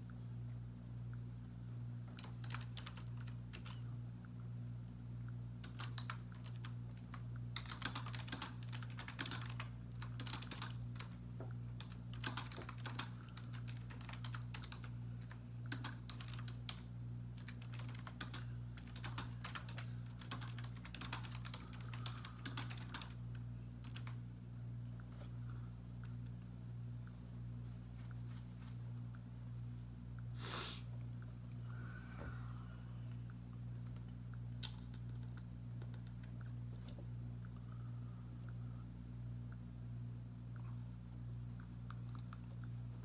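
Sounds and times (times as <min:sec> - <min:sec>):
steady low hum: 0:00.0 - 0:43.0
typing on computer keyboard: 0:02.1 - 0:03.8, 0:05.6 - 0:11.1, 0:11.8 - 0:23.2, 0:23.8 - 0:24.2.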